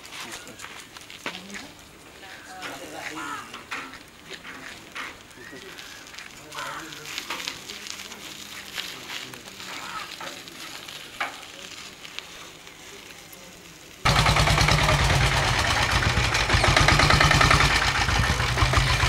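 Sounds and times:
three-wheeler engine running roughly: 0:14.0 - 0:19.0.

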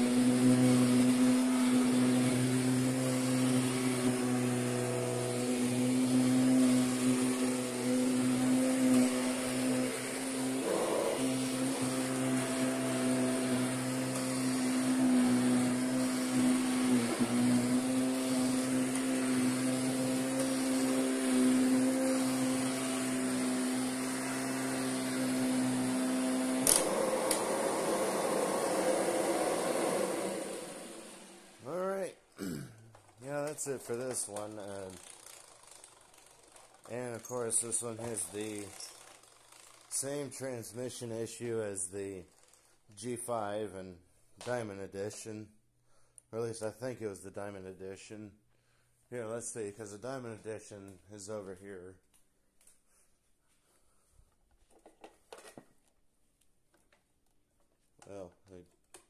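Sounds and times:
vacuum cleaner running: 0:00.0 - 0:31.9, 0:33.2 - 0:40.3.

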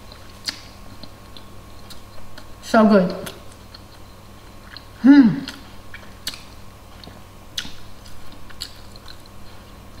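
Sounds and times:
low steady hum: 0:00.0 - 0:10.0
person chewing food: 0:00.0 - 0:10.0
mouth clicks and smacks: 0:00.1 - 0:01.2, 0:04.7 - 0:09.2.

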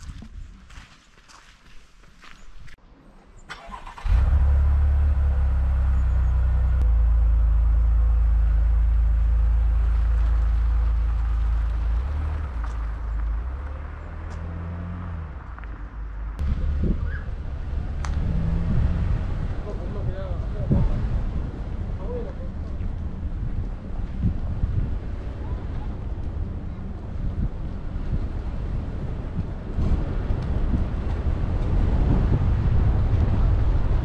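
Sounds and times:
car engine starting: 0:03.4 - 0:20.0
engine running with deep hum: 0:04.0 - 0:34.0.

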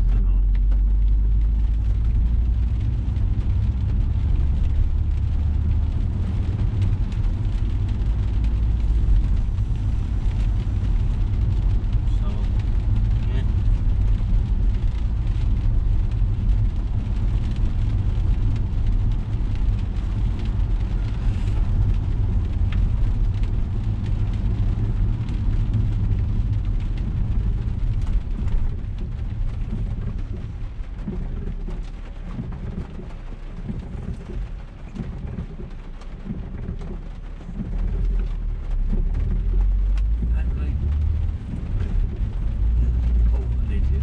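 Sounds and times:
car engine rumble: 0:00.0 - 0:44.0.

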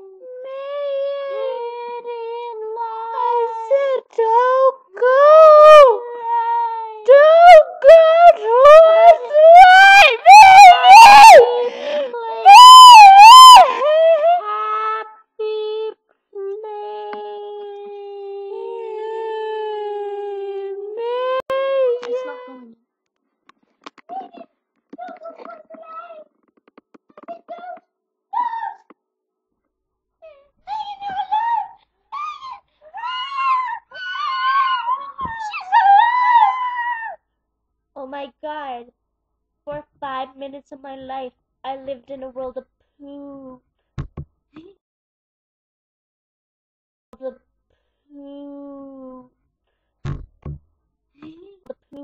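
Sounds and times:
girl making meowing wails: 0:05.0 - 0:15.2, 0:30.7 - 0:37.2.

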